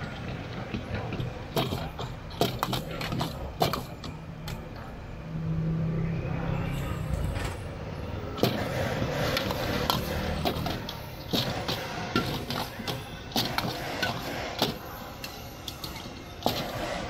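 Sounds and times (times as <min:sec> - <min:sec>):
street background din: 0:00.0 - 0:17.0
vehicle engine passing: 0:05.1 - 0:10.9.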